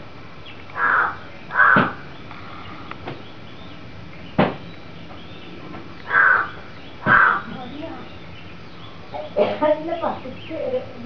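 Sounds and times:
crow cawing: 0.8s - 3.0s, 6.0s - 8.1s
sharp knock: 1.7s - 2.0s, 4.4s - 4.6s.

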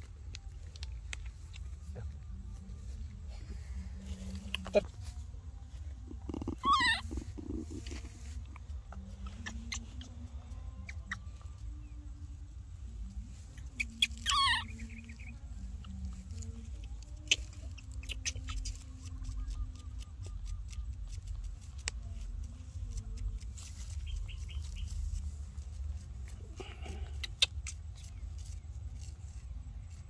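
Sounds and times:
baby monkey squealing: 6.2s - 7.7s, 13.6s - 15.3s.

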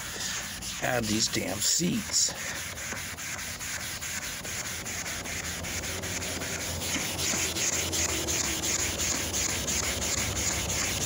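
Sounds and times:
sponge scrubbing wet seat: 0.0s - 11.0s.

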